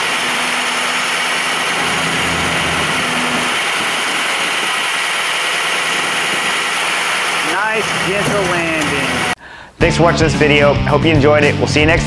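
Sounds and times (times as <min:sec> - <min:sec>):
hydraulics lowering a car: 0:00.0 - 0:09.4
truck engine running: 0:00.0 - 0:09.4.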